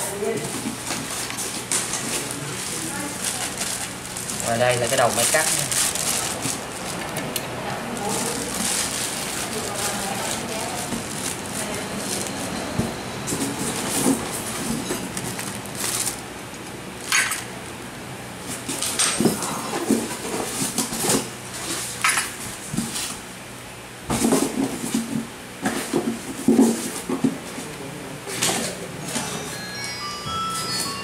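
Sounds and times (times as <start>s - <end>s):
plastic packaging crinkling: 0.8s - 17.7s.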